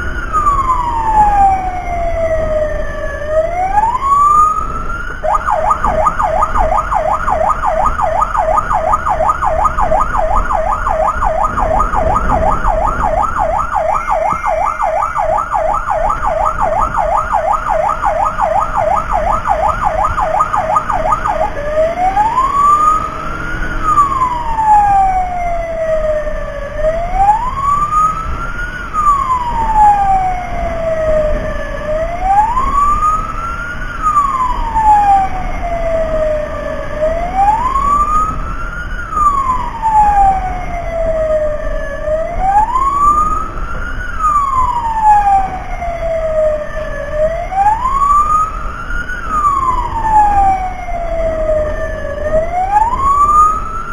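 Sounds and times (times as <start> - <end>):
emergency vehicle siren: 0.0 - 53.9
low vehicle rumble: 0.0 - 53.9.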